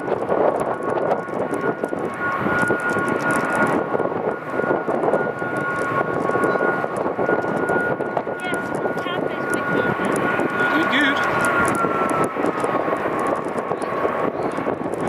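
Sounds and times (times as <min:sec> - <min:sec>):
jet engines rumbling with whine: 0:00.0 - 0:15.0.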